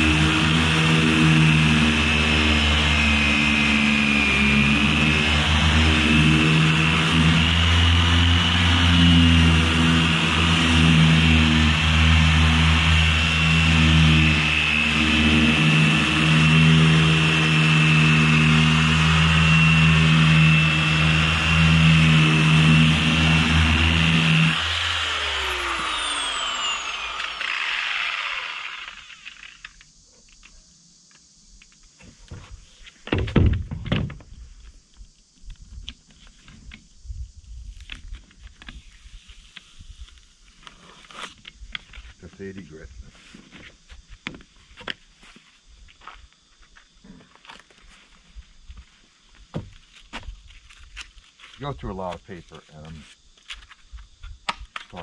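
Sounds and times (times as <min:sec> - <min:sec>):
orbital sander running: 0:00.0 - 0:29.9.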